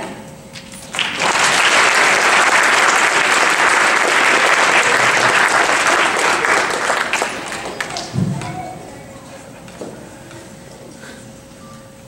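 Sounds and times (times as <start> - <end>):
audience applauding: 0.9 - 8.7.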